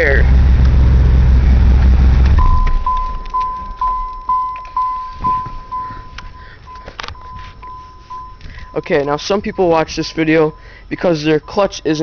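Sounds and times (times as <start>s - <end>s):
car engine shutting off: 0.0s - 12.0s
car warning chime: 2.4s - 12.0s.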